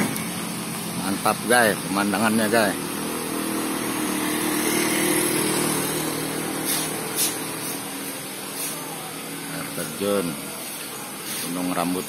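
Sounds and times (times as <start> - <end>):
vehicle engine humming: 0.0 - 12.0
constant hiss: 5.3 - 12.0.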